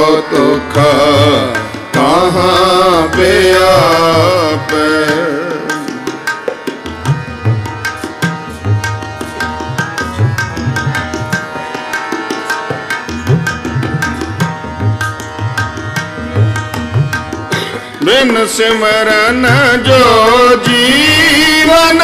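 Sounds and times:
person singing: 0.0s - 6.0s
harmonium chords: 0.0s - 22.0s
tabla playing a quick rhythm: 0.0s - 22.0s.

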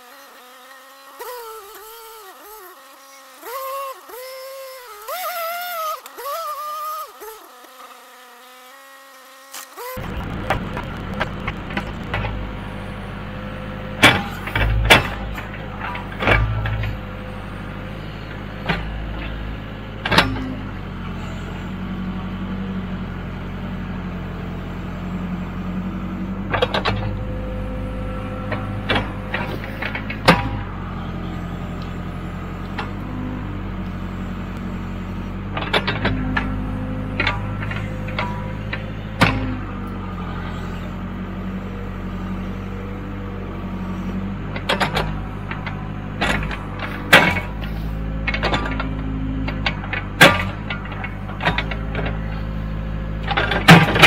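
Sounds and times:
diesel engine running: 10.0s - 54.0s.

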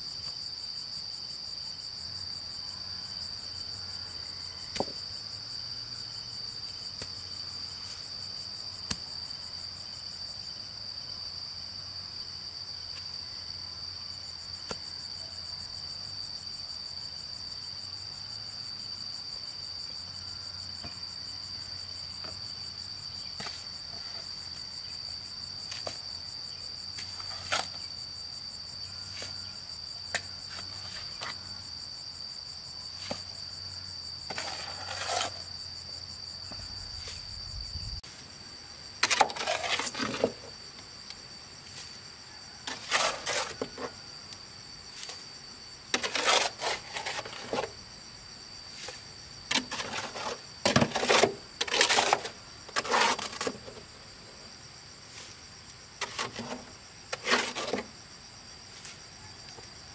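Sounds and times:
high insect drone: 0.0s - 59.9s
shovel scraping mortar in wheelbarrow: 27.0s - 27.9s, 34.3s - 35.5s, 39.0s - 40.6s, 42.6s - 44.0s, 45.9s - 47.8s, 48.6s - 53.9s, 56.0s - 58.0s.

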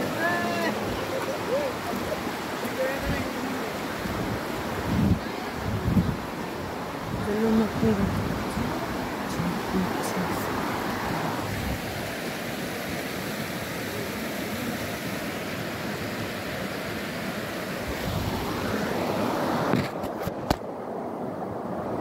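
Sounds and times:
wind buffeting microphone: 0.0s - 12.2s.

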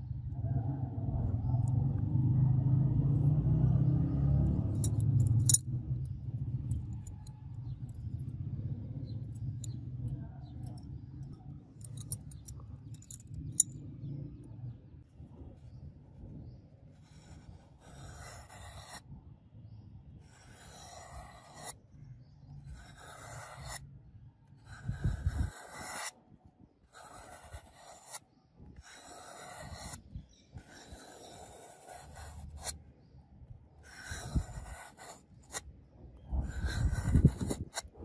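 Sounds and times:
low rumble: 0.0s - 16.7s
knife slicing floral foam: 22.7s - 23.8s, 28.8s - 30.0s.

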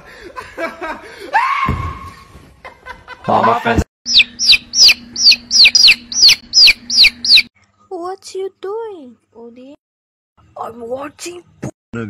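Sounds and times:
loud high falling chirps: 4.1s - 7.5s
steady low hum: 4.1s - 7.5s.

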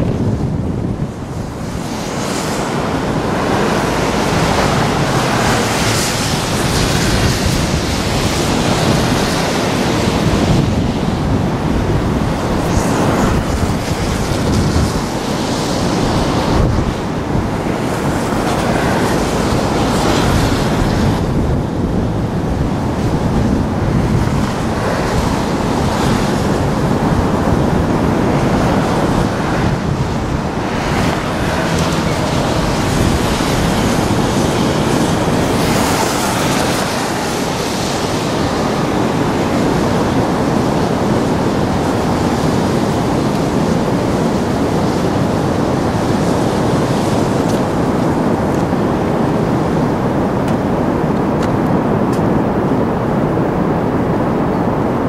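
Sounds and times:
wind buffeting microphone: 0.0s - 55.0s
waterfall rushing: 24.4s - 48.4s.

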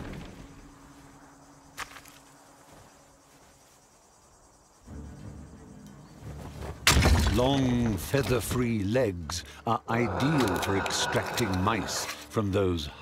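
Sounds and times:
faint insect chirring: 0.0s - 6.8s.

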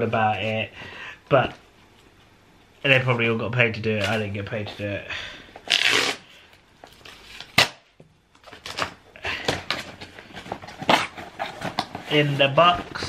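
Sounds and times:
cardboard sliding or tearing: 5.7s - 6.3s.

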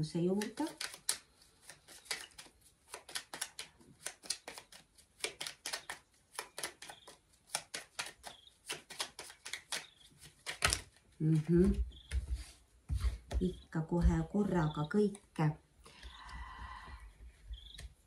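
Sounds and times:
cards being shuffled: 0.2s - 13.4s.

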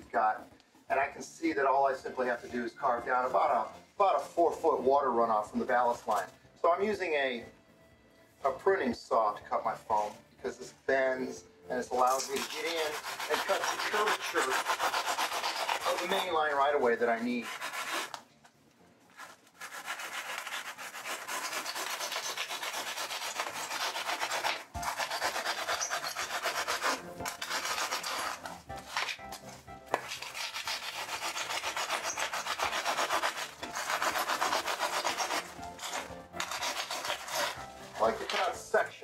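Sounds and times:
saw cutting foam board: 11.9s - 18.3s, 19.2s - 38.9s.

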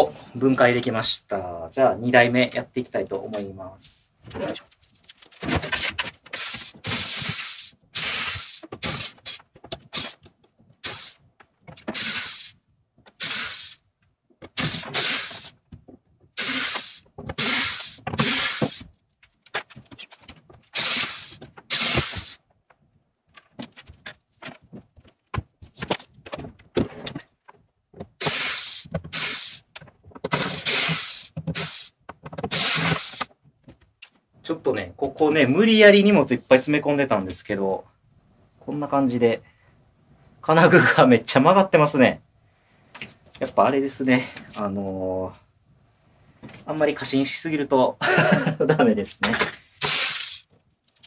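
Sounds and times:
power driver backing out screws: 16.4s - 18.8s, 20.8s - 22.3s, 32.4s - 33.3s.

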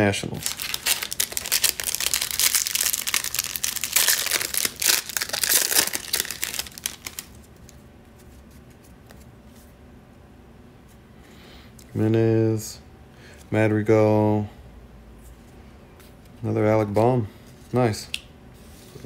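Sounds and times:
card pack wrapper crinkling and tearing: 0.2s - 7.8s.

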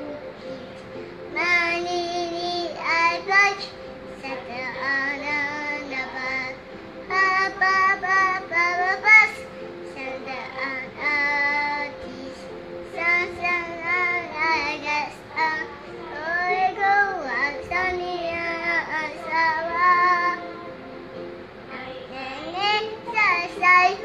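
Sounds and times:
little girl singing: 0.0s - 9.4s, 13.0s - 20.4s, 21.7s - 24.0s.

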